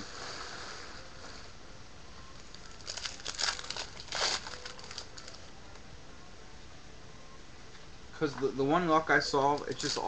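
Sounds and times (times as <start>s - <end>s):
foil wrapper crinkling and tearing: 2.4s - 5.5s.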